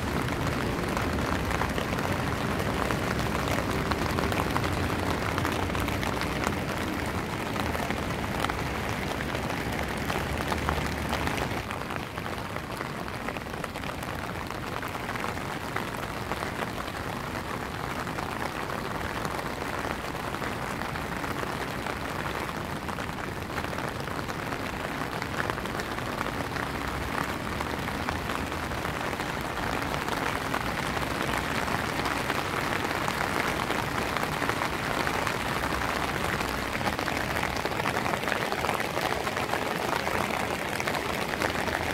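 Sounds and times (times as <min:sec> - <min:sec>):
rain on wet paving: 0:00.0 - 0:41.9.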